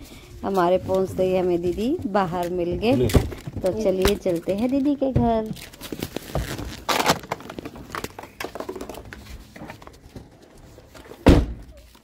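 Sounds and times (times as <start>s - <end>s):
loud thump: 11.2s - 11.7s.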